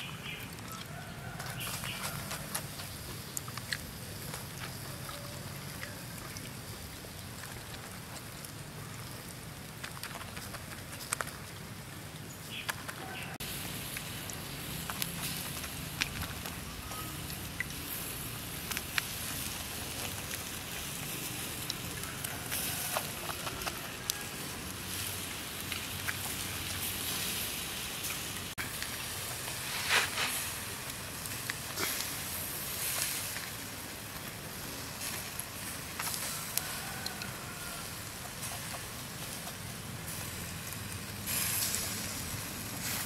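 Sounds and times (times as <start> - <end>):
coals crackling and popping: 0.0 - 43.0
meat sizzling on grill: 13.0 - 43.0.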